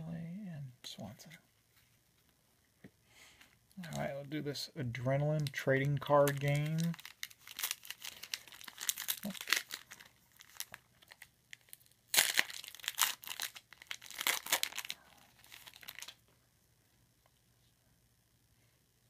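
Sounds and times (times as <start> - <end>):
wrapper crinkling and tearing: 5.3 - 16.2.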